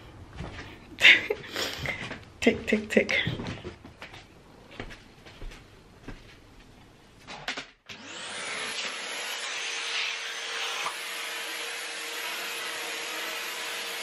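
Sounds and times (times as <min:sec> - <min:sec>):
vacuum cleaner running: 0:07.9 - 0:14.0.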